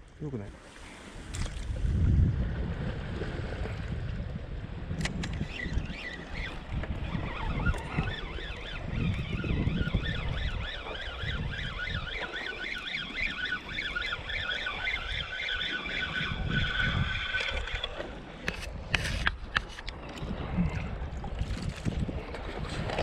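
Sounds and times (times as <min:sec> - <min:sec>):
fishing reel gears whining: 0:05.2 - 0:19.3.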